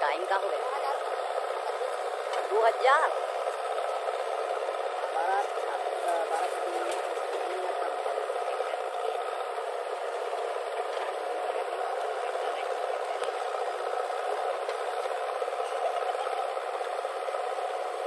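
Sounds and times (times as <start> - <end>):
diesel engines running: 0.0 - 18.0.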